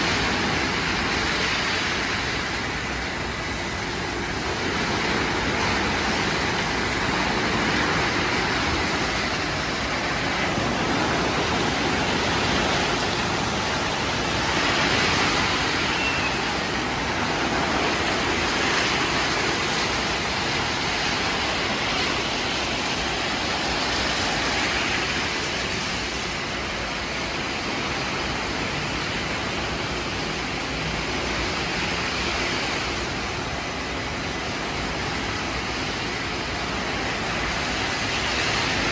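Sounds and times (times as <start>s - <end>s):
water spraying: 0.0s - 38.9s.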